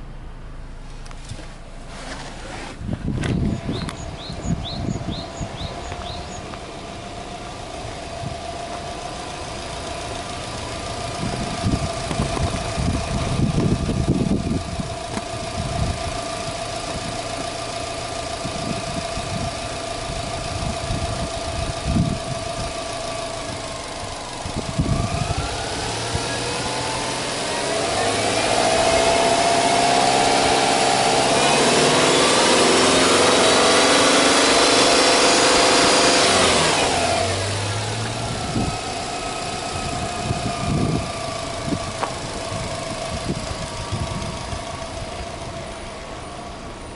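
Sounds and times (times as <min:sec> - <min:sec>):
car engine idling and revving: 0:00.0 - 0:46.9.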